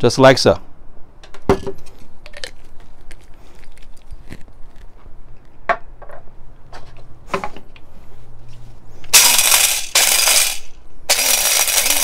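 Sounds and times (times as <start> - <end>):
coffee grinder rattling whir: 9.1 - 12.0.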